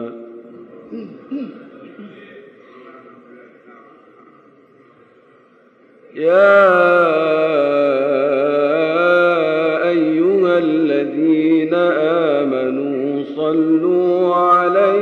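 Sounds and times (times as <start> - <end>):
man chanting unaccompanied: 6.1 - 15.0.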